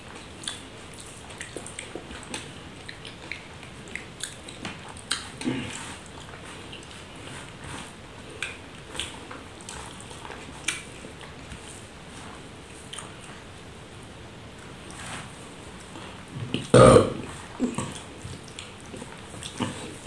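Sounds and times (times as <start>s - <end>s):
wet chewing and lip smacks: 0.2s - 7.6s, 8.2s - 11.7s, 12.8s - 13.4s, 17.8s - 20.0s.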